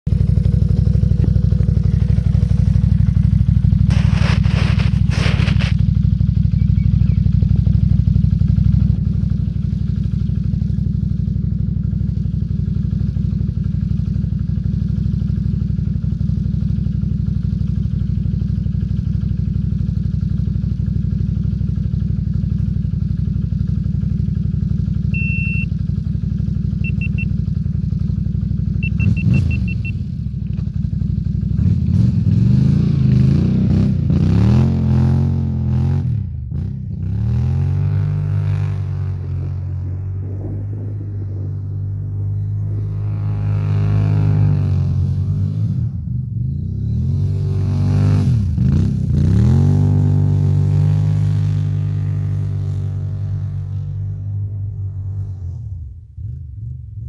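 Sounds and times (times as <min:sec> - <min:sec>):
atv engine idling: 0:00.1 - 0:47.5
short high beeps: 0:25.2 - 0:25.7, 0:26.8 - 0:27.3, 0:28.8 - 0:30.0.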